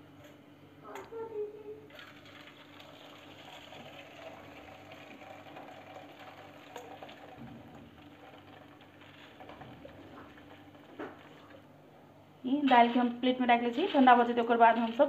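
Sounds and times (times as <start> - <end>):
trickle and splash of draining liquid: 1.9 - 11.7.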